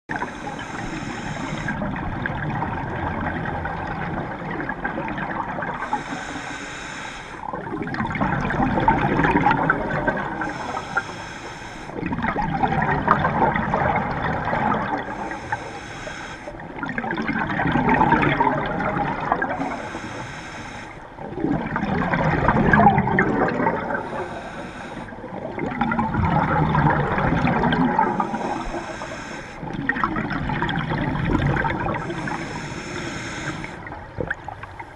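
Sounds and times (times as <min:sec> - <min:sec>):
regulator inhale hiss: 0:00.1 - 0:01.8, 0:05.8 - 0:07.5, 0:10.3 - 0:12.0, 0:15.0 - 0:16.6, 0:19.6 - 0:21.1, 0:24.0 - 0:25.2, 0:28.0 - 0:29.7, 0:32.0 - 0:33.9
exhaled air bubbling: 0:00.1 - 0:34.9.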